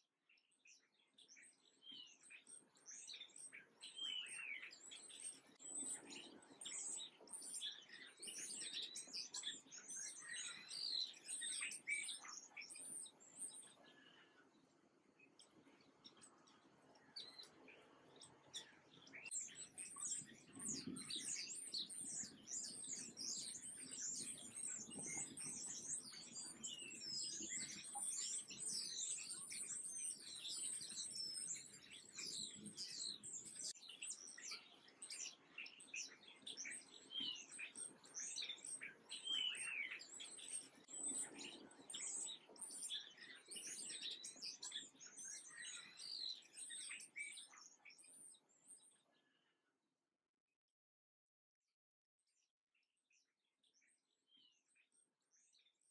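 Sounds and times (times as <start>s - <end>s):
sparrows chirping: 0.0s - 49.4s, 53.1s - 55.9s.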